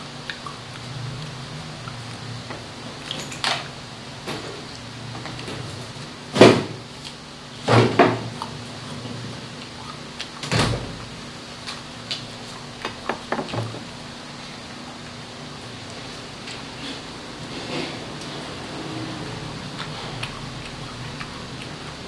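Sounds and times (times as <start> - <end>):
apple being bitten and chewed: 18.1 - 22.0.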